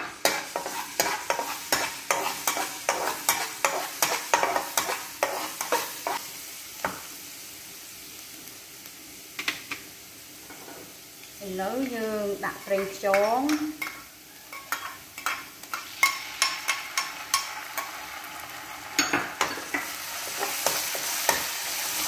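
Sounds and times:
metal spatula scraping a pan: 0.0 - 6.2, 12.8 - 18.0, 19.0 - 22.0
food sizzling in hot oil: 0.0 - 22.0.

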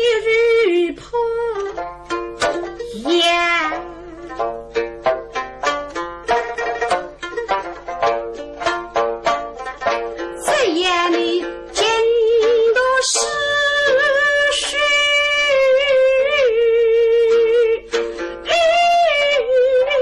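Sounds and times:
plucked pipa: 0.0 - 20.0
woman singing ballad: 10.4 - 17.8.

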